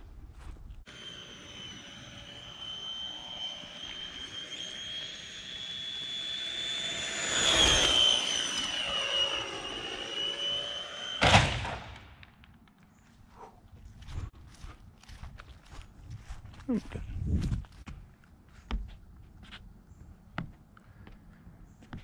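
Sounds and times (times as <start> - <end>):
rc car motor whine: 0.9 - 11.8.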